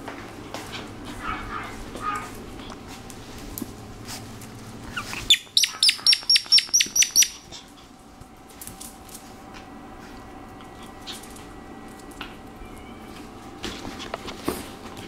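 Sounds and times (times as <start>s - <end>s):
squeaky toy squeaking: 5.2s - 7.4s.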